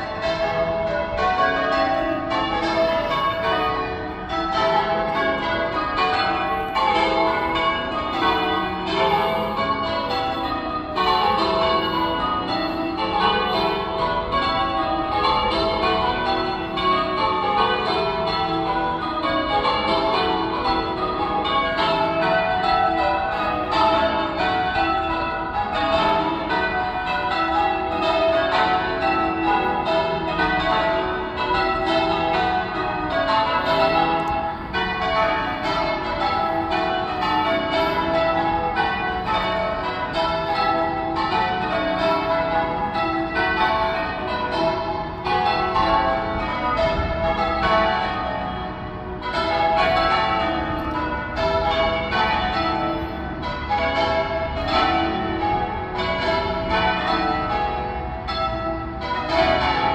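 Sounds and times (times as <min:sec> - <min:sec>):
church bells ringing: 0:00.0 - 0:59.9.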